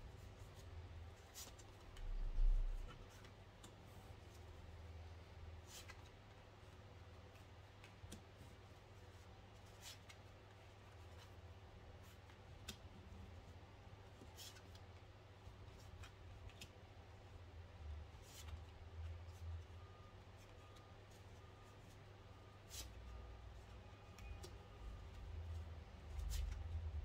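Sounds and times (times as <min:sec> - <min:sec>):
low room hum: 0:00.0 - 0:27.0
cards rustling and snapping: 0:26.1 - 0:26.9.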